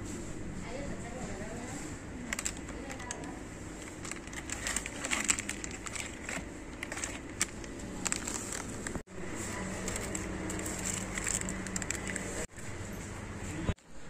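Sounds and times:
plastic sachets crinkling: 0:02.2 - 0:12.5.

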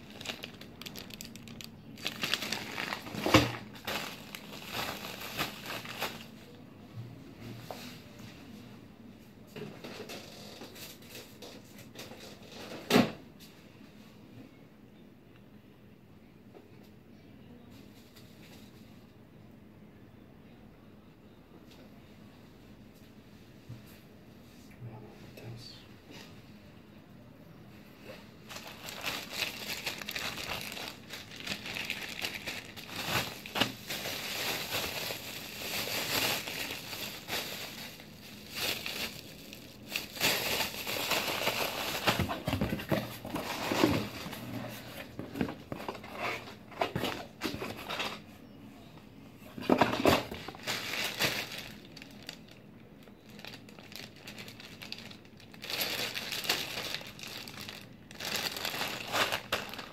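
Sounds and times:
plastic rustling and crinkling: 0:00.0 - 0:06.6, 0:28.0 - 0:48.3, 0:49.5 - 0:59.9.

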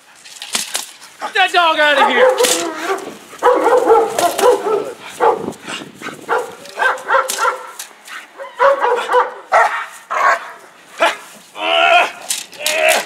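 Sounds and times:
dog barking hard: 0:01.9 - 0:07.8, 0:08.4 - 0:11.2.

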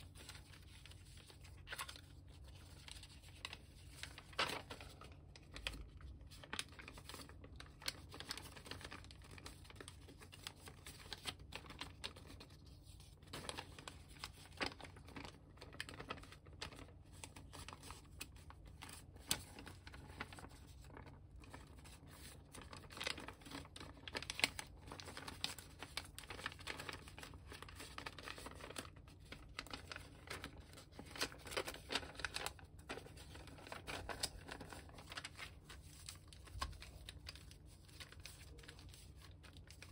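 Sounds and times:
paper rustling and crinkling: 0:00.0 - 0:39.9
sharp paper crackles: 0:00.0 - 0:39.9.

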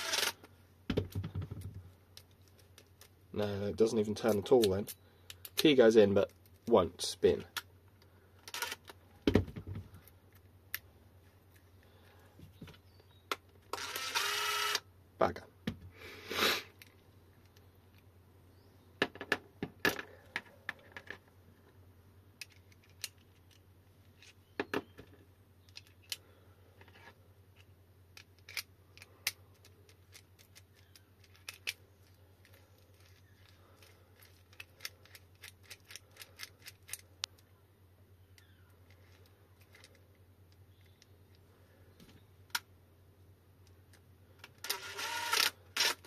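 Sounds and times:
small metal parts clicking: 0:22.4 - 0:23.6, 0:27.6 - 0:37.5, 0:38.3 - 0:40.1.

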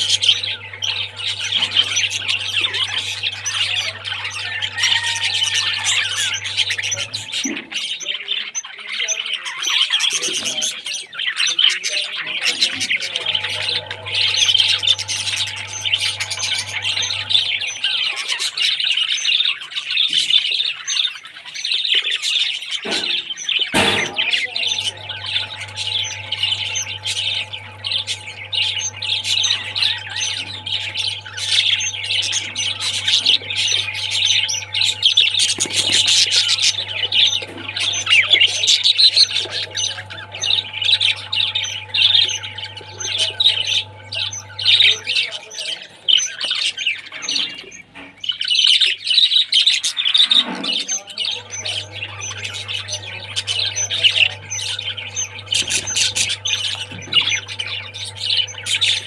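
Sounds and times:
steady low hum: 0:00.0 - 0:07.8, 0:12.4 - 0:18.1, 0:23.8 - 0:46.5, 0:51.1 - 0:59.0
budgerigars chattering and chirping: 0:00.0 - 0:59.0.

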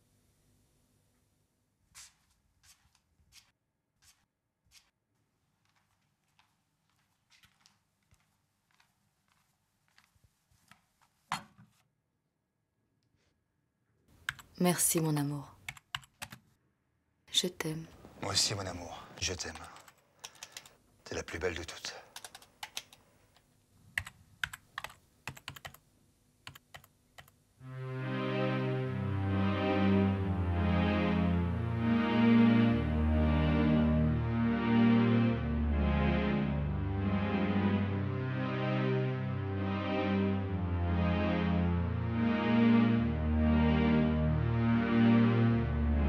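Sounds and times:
synthesizer chord music: 0:27.6 - 0:46.0.

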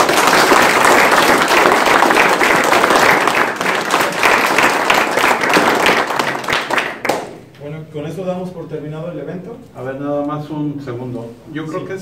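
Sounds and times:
people applauding: 0:00.0 - 0:07.4.

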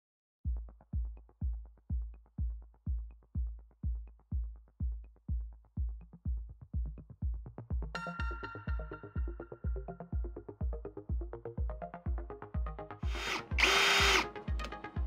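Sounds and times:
kick drum: 0:00.4 - 0:15.0
electronic music: 0:07.3 - 0:15.0.

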